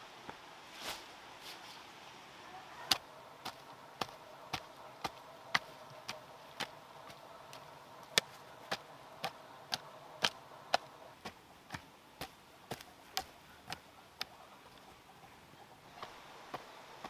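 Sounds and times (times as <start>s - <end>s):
hoe chopping dry soil: 2.9s - 14.3s, 15.9s - 17.0s.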